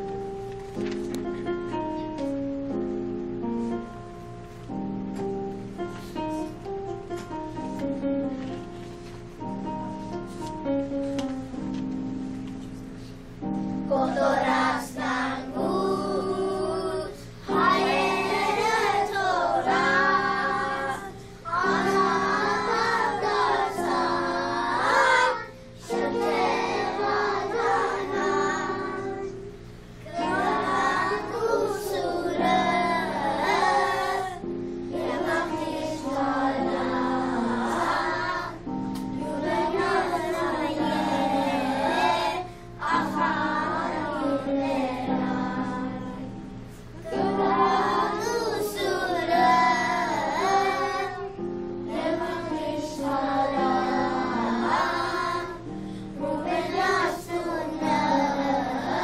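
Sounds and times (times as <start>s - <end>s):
instrumental accompaniment: 0.0s - 59.0s
children singing together: 13.9s - 46.4s, 47.0s - 59.0s.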